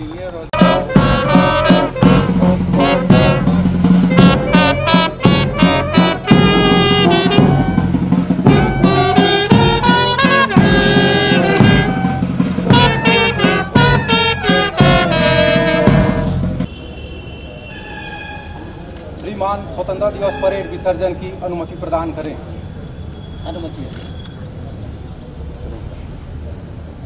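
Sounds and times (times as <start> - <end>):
brass band playing: 0.5 - 16.8.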